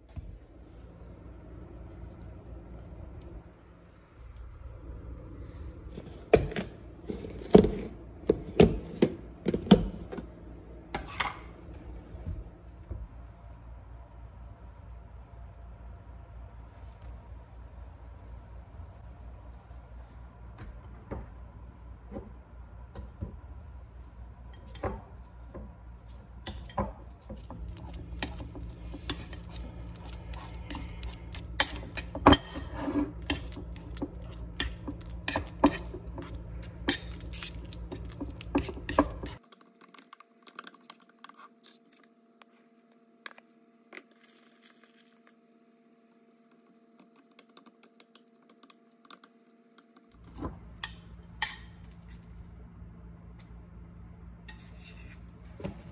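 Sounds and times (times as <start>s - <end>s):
steady low hum: 0.0s - 39.4s, 45.5s - 55.9s
fork scraping a bowl: 26.1s - 39.4s, 54.5s - 55.3s.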